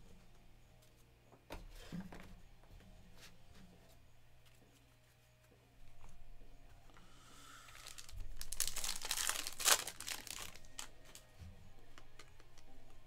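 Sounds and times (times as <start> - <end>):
trading cards being handled: 7.7 - 11.3.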